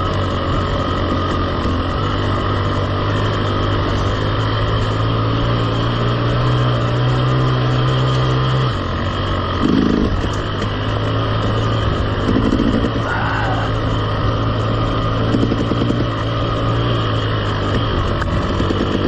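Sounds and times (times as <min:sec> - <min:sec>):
two-stroke motorbike engine: 0:00.0 - 0:19.0.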